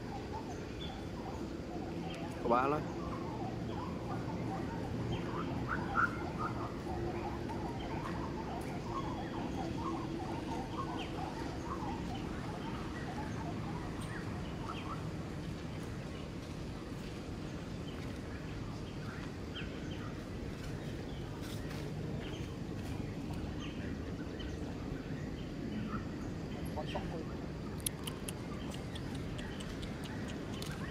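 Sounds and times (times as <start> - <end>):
high chirping calls: 23.6 - 30.9.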